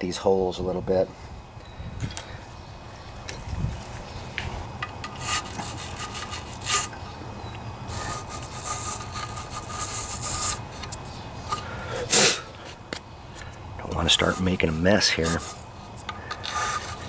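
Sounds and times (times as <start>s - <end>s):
wire brush scrubbing metal threads: 5.0s - 7.0s, 7.9s - 10.9s, 13.8s - 15.7s.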